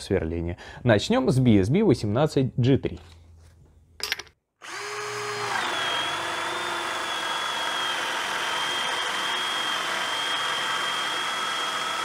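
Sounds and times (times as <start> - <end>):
cordless drill boring into wood: 4.6 - 12.0.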